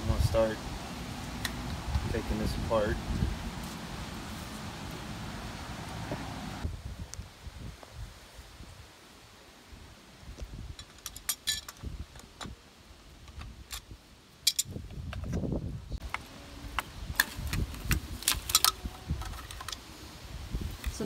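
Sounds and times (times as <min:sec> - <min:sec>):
metal pipe fittings clinking: 0:14.5 - 0:14.7.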